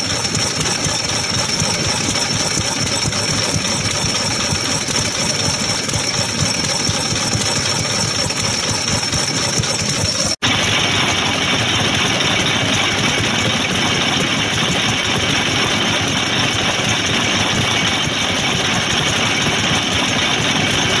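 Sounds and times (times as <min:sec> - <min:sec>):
oil engines idling: 0:00.0 - 0:21.0.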